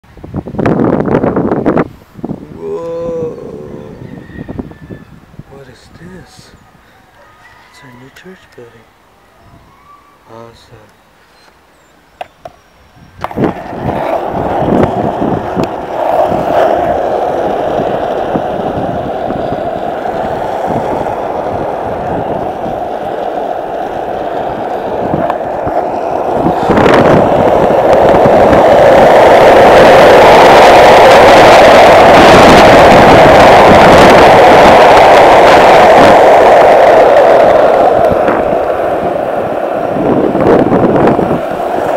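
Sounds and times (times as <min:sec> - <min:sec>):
skateboard wheels rolling on asphalt: 0:00.1 - 0:06.8, 0:10.7 - 0:41.9.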